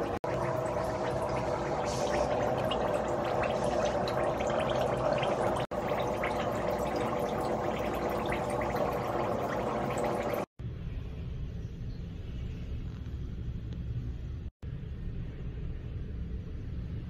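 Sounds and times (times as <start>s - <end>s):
water churning and bubbling: 0.0s - 10.6s
steady hum: 0.0s - 17.0s.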